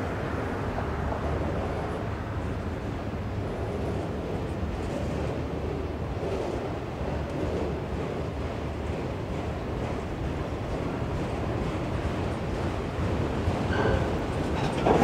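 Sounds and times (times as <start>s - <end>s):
freight train rumbling past: 0.0s - 15.0s.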